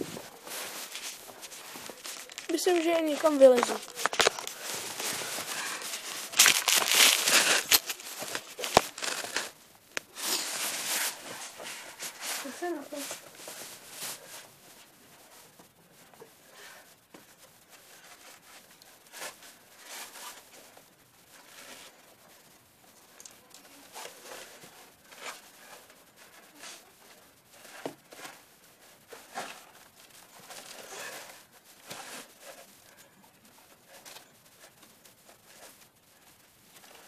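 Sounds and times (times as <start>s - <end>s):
clothing rubbing against stone: 0.0s - 14.4s.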